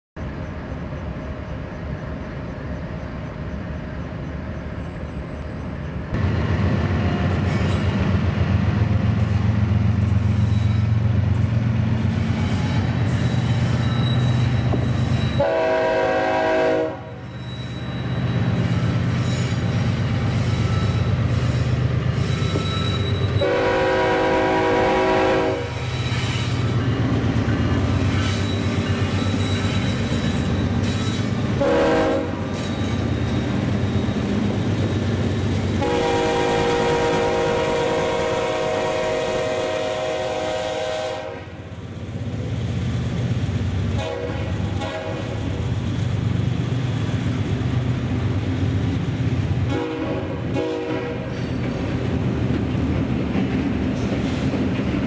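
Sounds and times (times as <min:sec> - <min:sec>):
locomotives rumbling past: 0:00.2 - 0:55.0
locomotive horn blasts: 0:15.4 - 0:17.3, 0:23.4 - 0:25.8, 0:31.6 - 0:32.4, 0:35.8 - 0:41.6, 0:44.0 - 0:45.4, 0:49.7 - 0:51.3.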